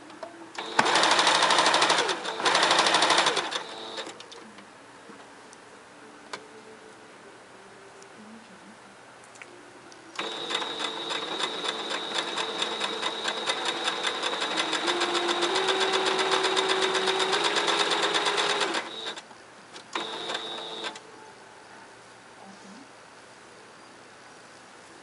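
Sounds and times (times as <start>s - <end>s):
electric sewing machine stitching: 0.6s - 4.1s, 10.2s - 19.2s, 19.9s - 21.0s.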